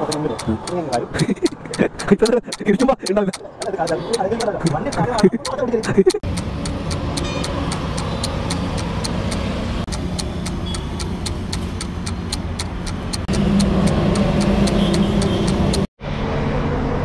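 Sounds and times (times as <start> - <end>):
fast even ticking: 0.0 - 15.9
roadside traffic rumble: 0.0 - 17.0
louder engine hum: 6.2 - 17.0.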